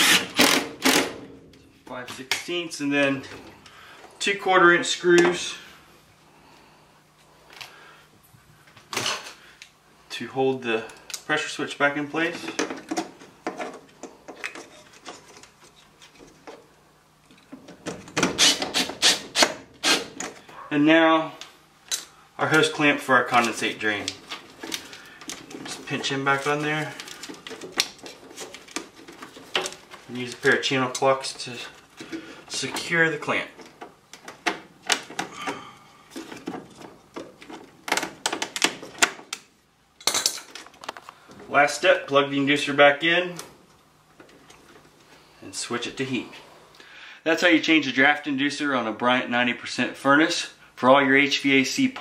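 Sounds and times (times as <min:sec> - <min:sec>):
nut driver scraping screw: 0:18.4 - 0:20.1.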